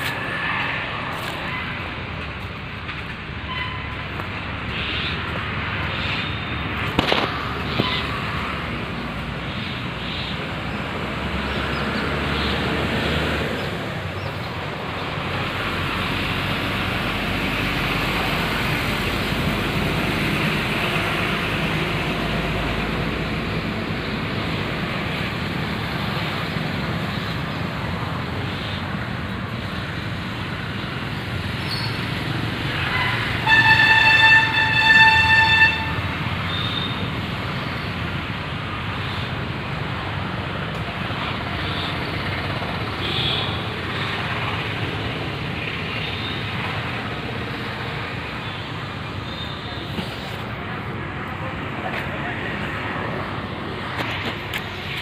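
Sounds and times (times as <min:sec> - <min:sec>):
traffic noise: 0:00.0 - 0:55.0
high-pitched vehicle horn: 0:32.9 - 0:37.0.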